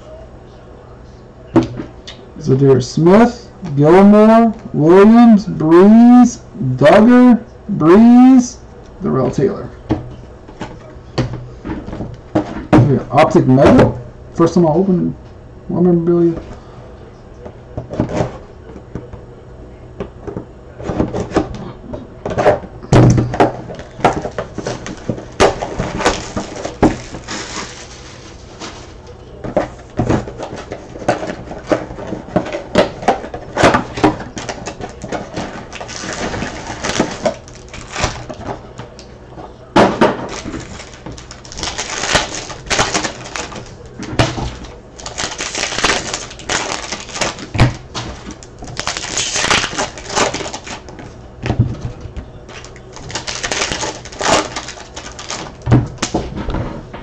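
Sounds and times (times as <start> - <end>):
foil wrappers crinkling and ripping: 23.7 - 29.1, 29.7 - 38.6, 40.0 - 51.0, 51.9 - 56.2
cards and packaging clicking: 40.2 - 50.9, 52.5 - 56.1.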